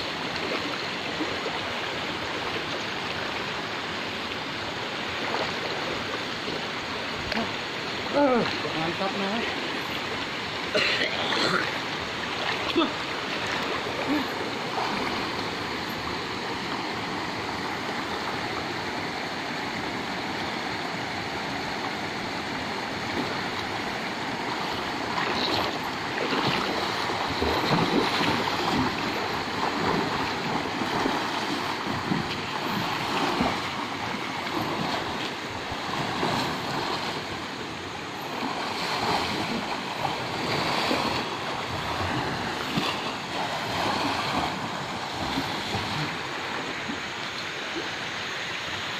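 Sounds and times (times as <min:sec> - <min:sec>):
river flowing over shallow bed: 0:00.0 - 0:48.9
people splashing in water: 0:25.1 - 0:37.2.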